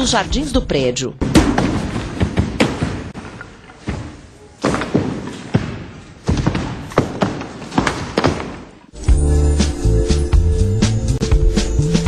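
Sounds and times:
music: 0.0 - 1.0, 8.9 - 12.0.

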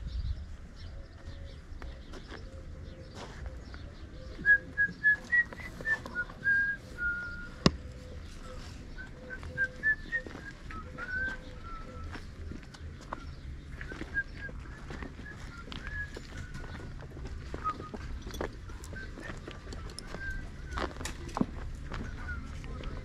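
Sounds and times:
footsteps on dirt: 0.3 - 23.0
person whistling a tune: 4.4 - 7.6, 9.0 - 12.1, 13.8 - 18.0, 18.9 - 21.0.

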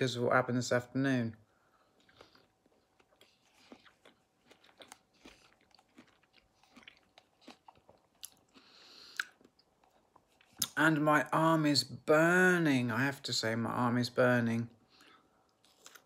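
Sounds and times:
person chewing food: 1.7 - 10.8, 15.0 - 16.0
short breath: 8.6 - 9.3.

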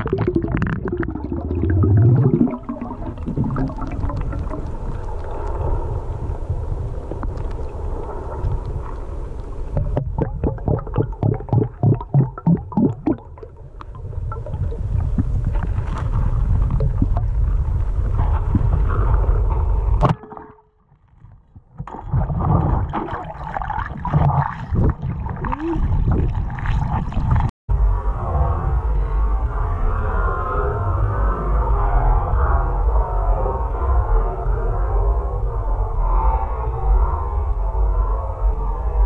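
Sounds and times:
water rushing and bubbling: 0.0 - 27.5.

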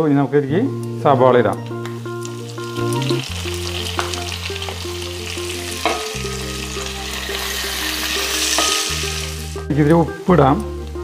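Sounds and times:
background music: 0.0 - 11.0
onions sizzling in oil: 1.8 - 9.6
spatula scraping a pan: 5.7 - 9.6.

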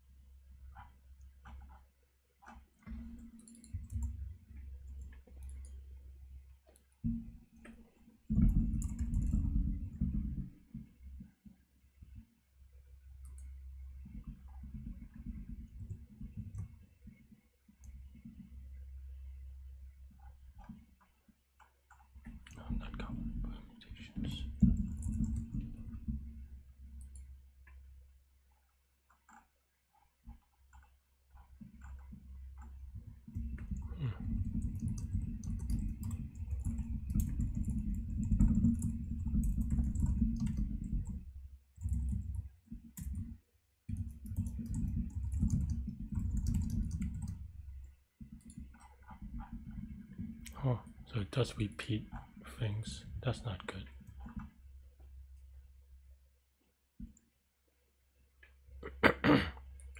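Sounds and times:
computer keyboard typing: 2.5 - 4.2, 8.3 - 10.4, 24.2 - 26.2, 31.7 - 47.5, 48.2 - 50.6.

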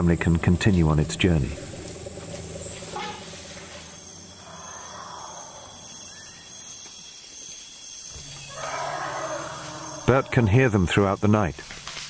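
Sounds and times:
crickets trilling: 0.0 - 12.0
soft hiss: 11.2 - 12.0.

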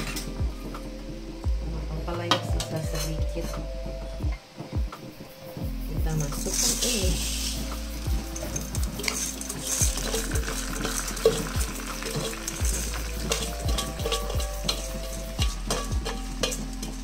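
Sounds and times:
rice grains hissing in a wok: 4.6 - 17.0
metal spatula knocking on a wok: 9.9 - 17.0.

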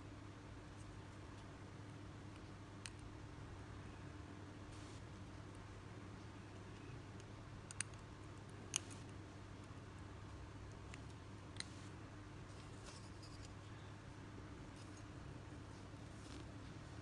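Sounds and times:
small sharp clicks: 6.8 - 8.1.

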